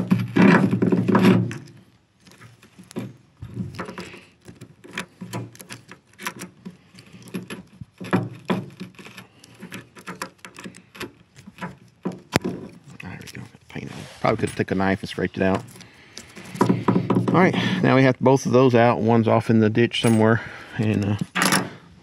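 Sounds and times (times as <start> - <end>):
pliers clicking and scraping metal: 1.2 - 13.6, 15.1 - 16.8.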